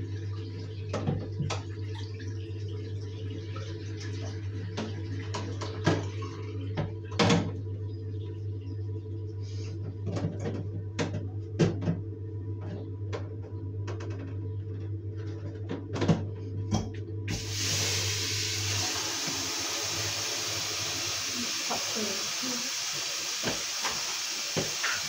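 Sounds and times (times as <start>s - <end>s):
tap water running: 0.0s - 7.4s, 17.3s - 25.0s
low steady hum: 0.0s - 23.0s.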